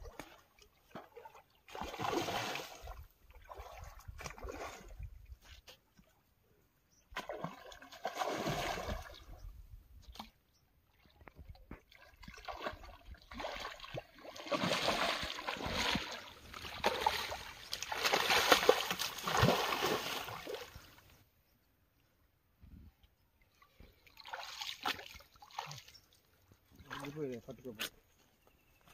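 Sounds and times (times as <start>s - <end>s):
fish splashing in water: 1.7s - 4.9s, 7.2s - 9.2s, 12.2s - 21.0s.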